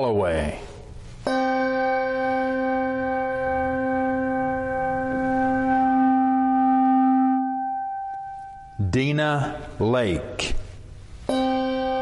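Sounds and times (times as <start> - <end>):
bell ringing: 1.3 - 8.8, 11.3 - 12.0.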